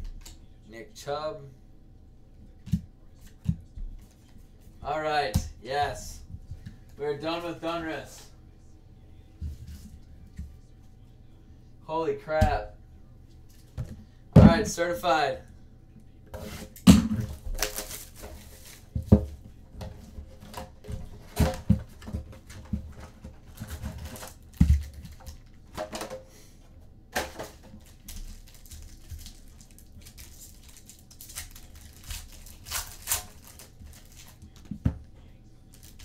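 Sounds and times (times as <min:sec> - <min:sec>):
wrappers and cards crinkling: 0:17.3 - 0:19.0, 0:27.8 - 0:34.6, 0:35.7 - 0:36.0.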